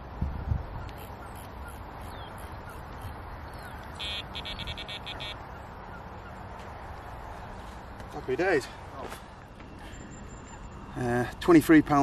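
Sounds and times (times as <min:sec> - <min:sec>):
outdoor background noise: 0:00.0 - 0:12.0
bite alarm beeping: 0:03.9 - 0:05.4.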